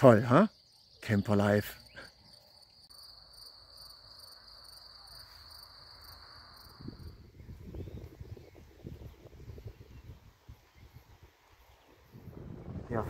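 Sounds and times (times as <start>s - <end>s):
crickets trilling: 0.0s - 13.0s
wind rumbling on microphone: 6.6s - 13.0s.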